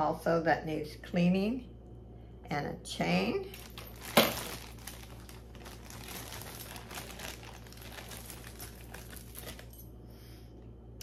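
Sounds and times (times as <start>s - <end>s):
packaging crinkling: 3.5s - 9.8s.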